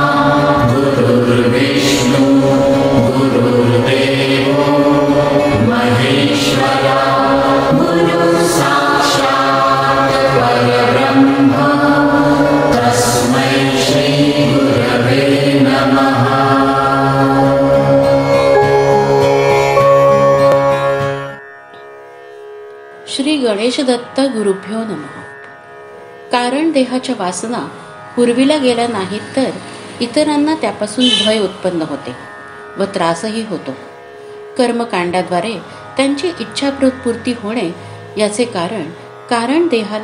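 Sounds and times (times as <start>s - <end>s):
chanted mantra singing: 0.0s - 21.2s
steady drone: 0.0s - 21.4s.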